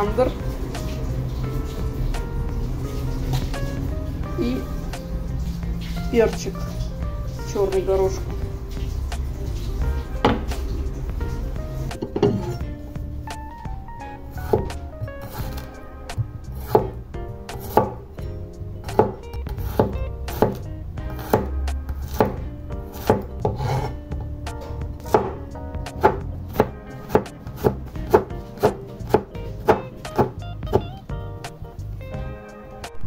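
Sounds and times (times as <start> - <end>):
knife chopping on wooden board: 10.2 - 10.5, 11.9 - 12.6, 16.6 - 18.0, 18.9 - 30.9.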